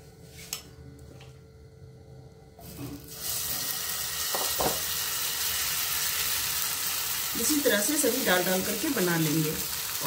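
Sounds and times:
batter sizzling in pan: 0:02.6 - 0:10.0.

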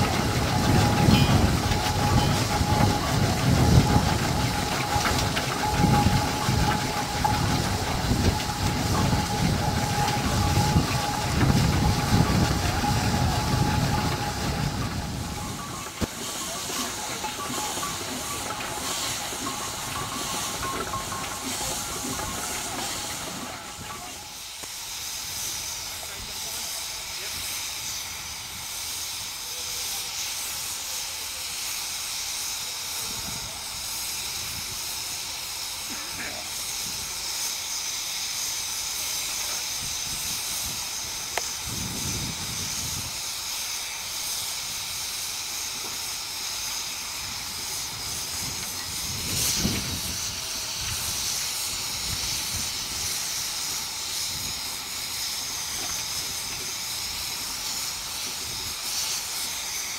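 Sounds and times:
steady high whine: 0:00.0 - 0:25.0
steam engine exhaust beats: 0:00.0 - 0:59.9.

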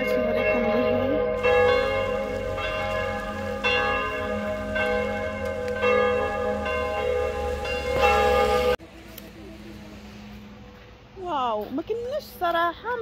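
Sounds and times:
bells ringing: 0:00.0 - 0:08.8.

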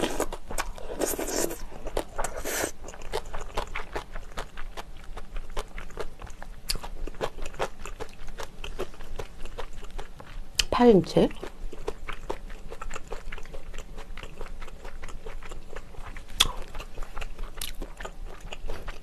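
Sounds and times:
slurping from spoon: 0:00.0 - 0:02.8
wet chewing: 0:00.0 - 0:19.0.

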